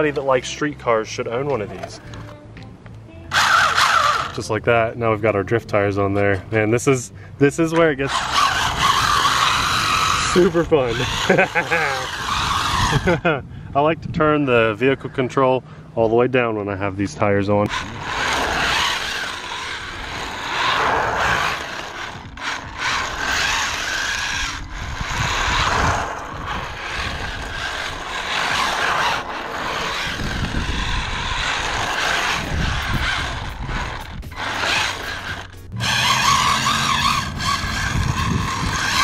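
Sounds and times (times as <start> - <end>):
rc car motor whine: 3.3 - 4.5, 7.7 - 13.3, 17.6 - 39.0
plastic tires scraping pavement: 3.3 - 6.7, 7.7 - 13.2, 17.0 - 39.0.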